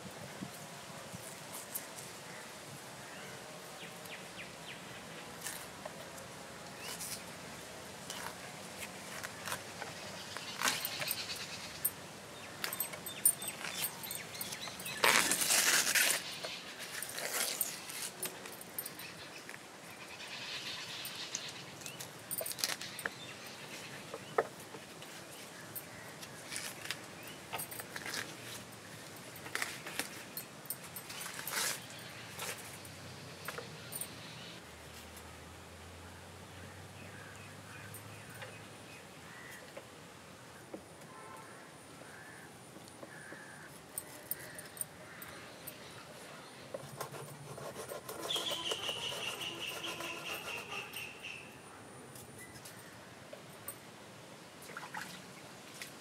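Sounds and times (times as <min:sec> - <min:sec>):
birds chirping: 0:09.2 - 0:15.3, 0:42.1 - 0:51.7.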